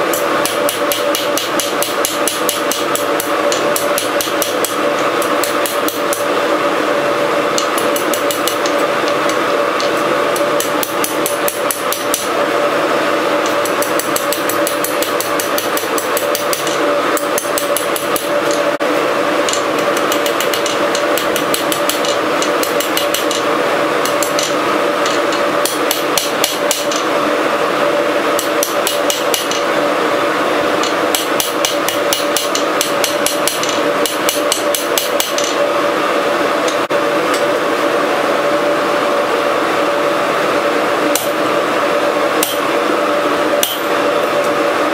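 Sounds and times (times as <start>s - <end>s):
steady hum: 0.0s - 44.9s
hammer striking metal on anvil: 0.1s - 6.3s, 7.6s - 12.3s, 13.5s - 18.7s, 19.5s - 27.1s, 28.4s - 29.7s, 30.8s - 35.6s, 41.2s - 41.4s, 42.4s - 42.7s, 43.6s - 44.0s.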